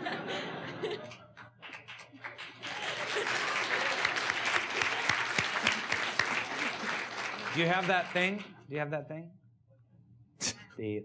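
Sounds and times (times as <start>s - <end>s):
audience laughing: 0.0s - 1.5s, 2.7s - 8.2s
audience applause: 0.8s - 8.5s.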